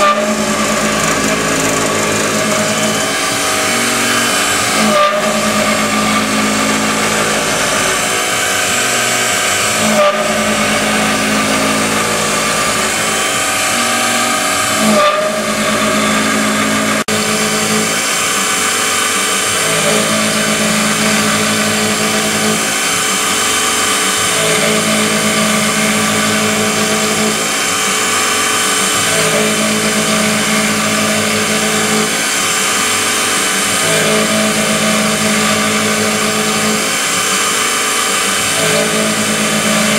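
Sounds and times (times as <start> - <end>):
low motor hum: 0.0 - 27.9
milling machine spindle cutting metal: 0.0 - 39.9.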